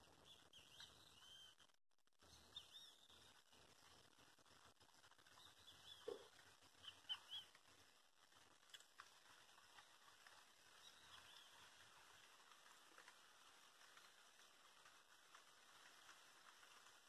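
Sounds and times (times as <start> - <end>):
small bird chirping: 0.0 - 4.0, 5.1 - 7.9, 9.3 - 12.8
light rain hissing: 0.0 - 17.0.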